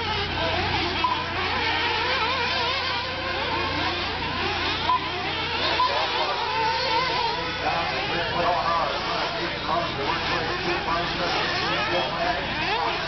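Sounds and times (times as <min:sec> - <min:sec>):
rc car engines buzzing: 0:00.0 - 0:13.0.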